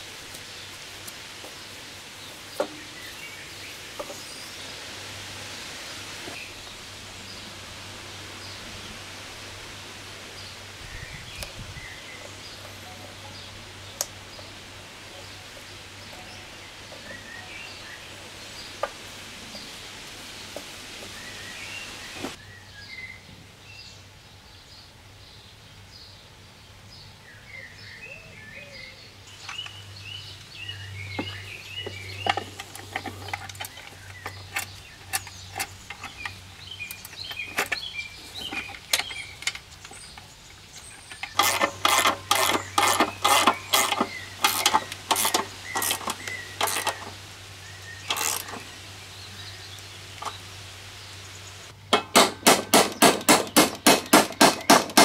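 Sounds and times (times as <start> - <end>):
small birds chirping: 0.0 - 5.4, 6.2 - 51.9
socket ratchet clicking: 41.2 - 47.1.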